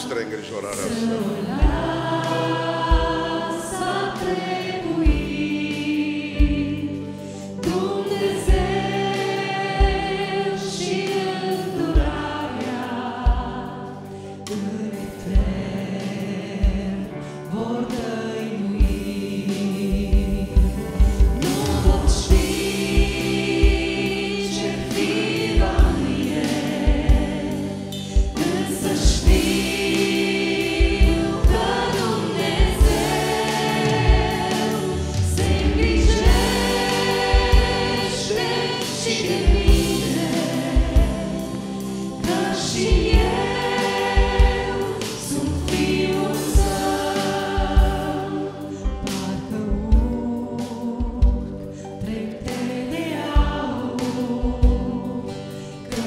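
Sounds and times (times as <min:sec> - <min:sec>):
group singing in harmony: 0:00.0 - 0:56.0
keyboard: 0:00.0 - 0:56.0
drum beat: 0:19.9 - 0:24.3, 0:28.2 - 0:41.5, 0:42.2 - 0:48.2.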